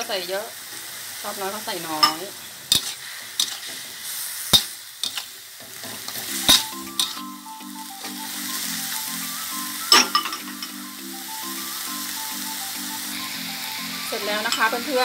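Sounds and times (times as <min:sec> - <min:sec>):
food sizzling in a wok: 0:00.0 - 0:15.0
metal spatula scraping pan: 0:02.0 - 0:04.0
simple background tune: 0:06.2 - 0:15.0.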